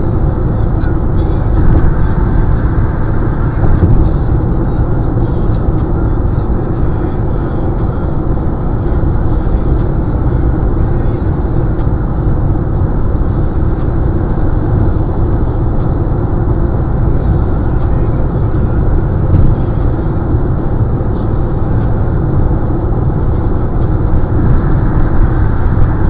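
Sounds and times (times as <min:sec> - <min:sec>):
car engine running: 0:00.0 - 0:26.0.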